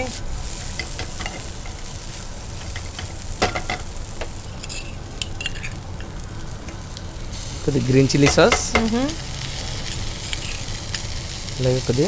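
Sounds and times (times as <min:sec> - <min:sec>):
food sizzling in a pan: 0:00.0 - 0:12.0
spatula stirring: 0:04.6 - 0:05.8.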